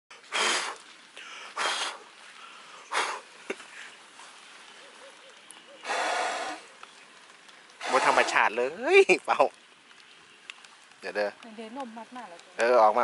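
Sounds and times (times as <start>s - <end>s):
breathy sniffs: 0.3s - 3.9s, 5.8s - 6.6s.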